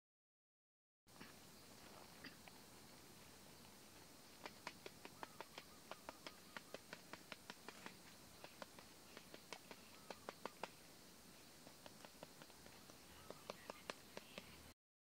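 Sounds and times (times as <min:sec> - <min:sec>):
faint sharp clicks: 0:04.4 - 0:10.8.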